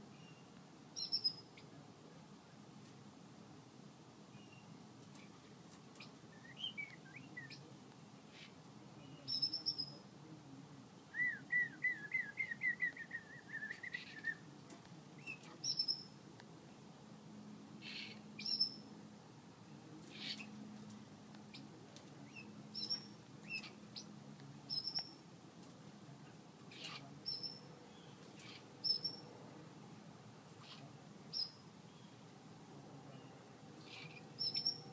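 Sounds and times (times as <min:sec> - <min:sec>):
canary chirping: 0:01.0 - 0:01.5, 0:15.2 - 0:16.1, 0:17.8 - 0:18.9, 0:24.7 - 0:25.2, 0:26.7 - 0:29.2, 0:30.6 - 0:32.1, 0:33.8 - 0:34.9.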